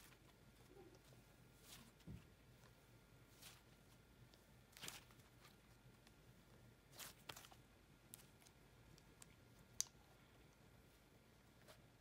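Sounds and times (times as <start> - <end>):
slime squishing and crackling: 4.7 - 5.6, 6.8 - 10.0.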